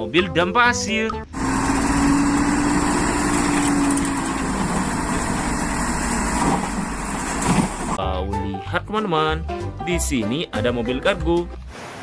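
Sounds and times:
diesel engine running: 1.3 - 8.0
steady hum: 1.3 - 8.0.

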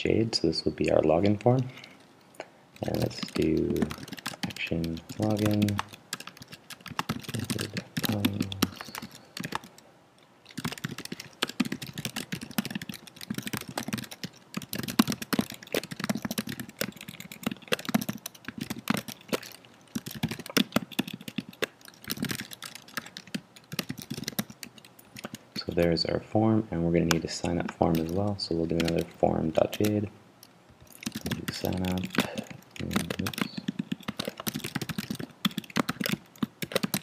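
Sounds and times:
typing on computer keyboard: 2.8 - 9.8, 10.5 - 25.9, 27.0 - 30.0, 30.9 - 37.0.

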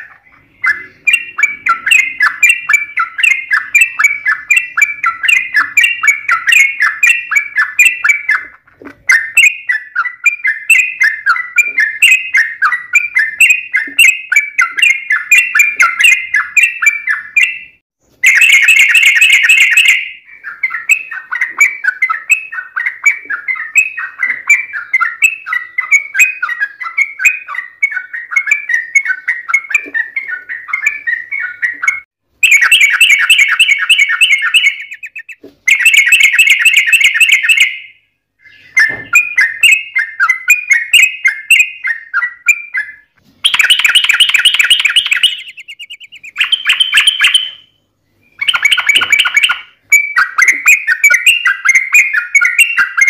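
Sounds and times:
bulbuls singing: 0.0 - 53.0.

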